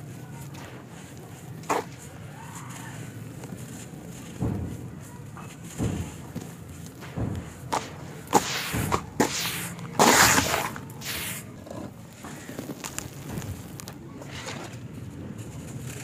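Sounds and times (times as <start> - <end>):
handfuls of sand thudding: 0.0 - 16.0
falling powder hiss: 7.0 - 11.6.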